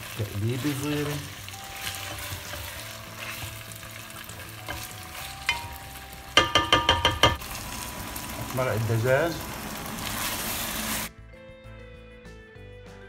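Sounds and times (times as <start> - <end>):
spatula stirring in a pot: 0.0 - 7.4
beans sizzling in hot oil: 0.0 - 11.1
spatula knocking on a pot: 5.5 - 7.4.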